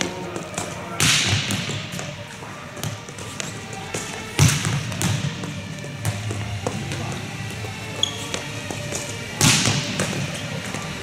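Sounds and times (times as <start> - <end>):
volleyball struck hard: 1.0 - 1.9, 4.4 - 7.1, 9.4 - 10.3.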